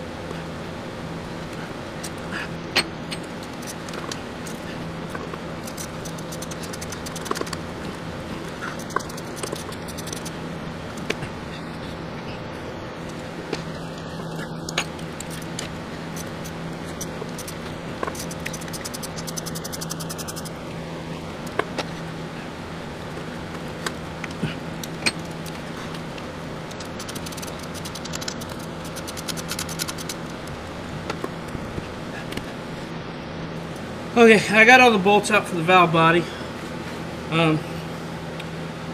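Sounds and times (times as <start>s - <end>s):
steady low hum: 0.0s - 38.9s
hand ratchet clicking: 5.6s - 7.6s, 8.6s - 10.3s, 14.7s - 20.5s, 26.7s - 30.2s.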